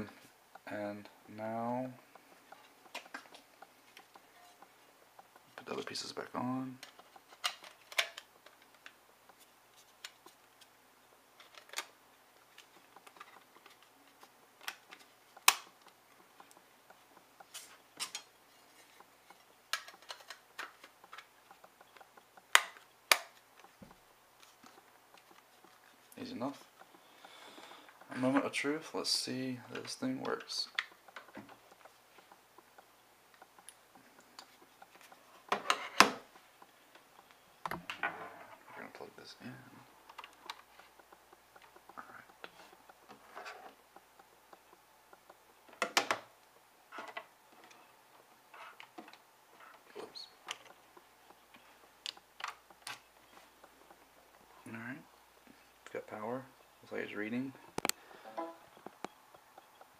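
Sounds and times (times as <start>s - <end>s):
faint ticks: 12.5s - 35.6s, 39.2s - 46.7s, 47.6s - 59.9s.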